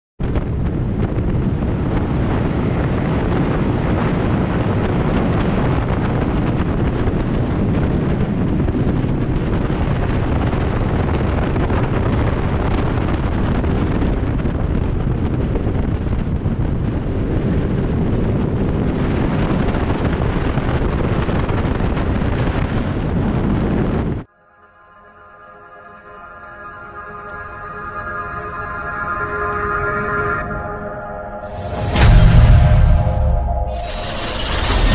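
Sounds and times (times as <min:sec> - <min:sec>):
wind noise on microphone: 0:00.2 - 0:24.3.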